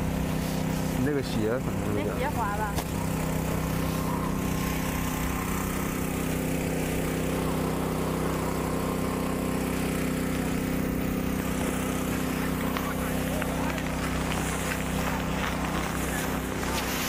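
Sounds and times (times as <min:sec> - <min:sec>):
engine humming steadily: 0:00.0 - 0:17.0.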